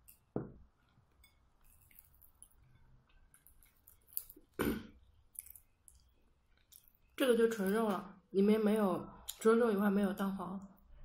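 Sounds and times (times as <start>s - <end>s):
chewing: 0.0s - 4.7s, 5.3s - 8.0s.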